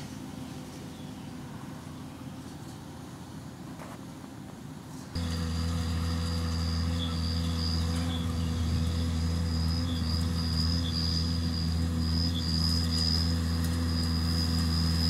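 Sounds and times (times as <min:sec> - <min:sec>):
tractor engine running: 0:05.2 - 0:15.0.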